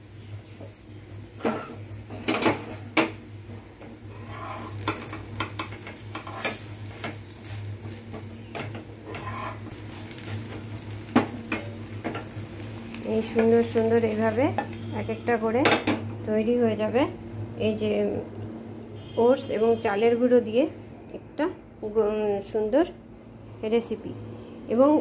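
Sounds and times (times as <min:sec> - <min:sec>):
faint sizzle: 0:00.0 - 0:25.0
steady low hum: 0:00.0 - 0:25.0
spatula scraping frying pan: 0:04.1 - 0:06.7, 0:09.0 - 0:10.3.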